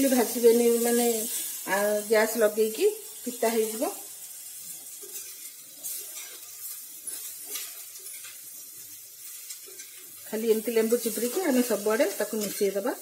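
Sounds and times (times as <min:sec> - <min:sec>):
food sizzling in a pan: 0:00.0 - 0:13.0
metal spatula scraping: 0:03.6 - 0:13.0.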